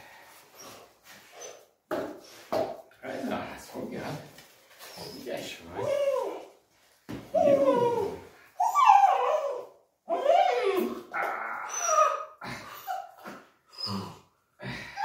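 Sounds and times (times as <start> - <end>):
young dog whining and yipping: 7.3 - 14.2.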